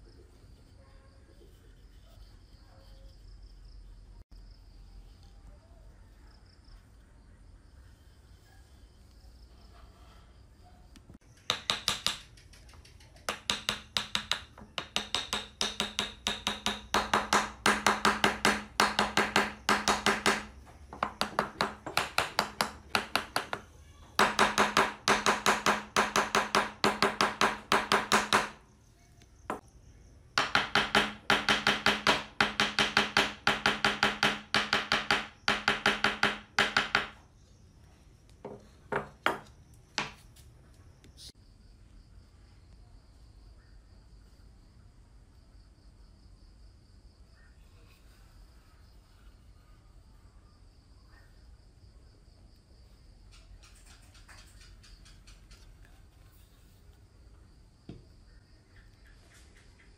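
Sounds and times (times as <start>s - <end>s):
hammer tapping wooden board: 11.5s - 12.3s, 13.3s - 23.6s, 24.2s - 28.6s, 30.4s - 37.2s.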